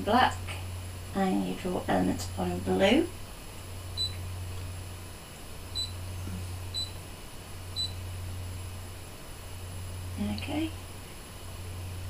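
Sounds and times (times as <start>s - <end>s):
steady low hum: 0.0s - 12.0s
touchscreen beeping: 4.0s - 4.2s, 5.8s - 6.0s, 6.7s - 7.0s.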